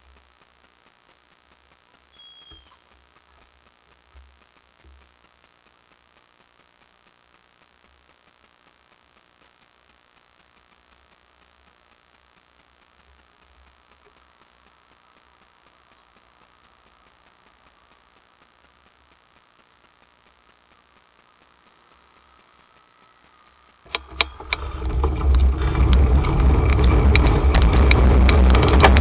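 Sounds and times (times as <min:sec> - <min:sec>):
faint regular ticking: 0:00.0 - 0:29.0
sharp clicks: 0:00.0 - 0:29.0
wind and road noise on microphone: 0:24.4 - 0:29.0.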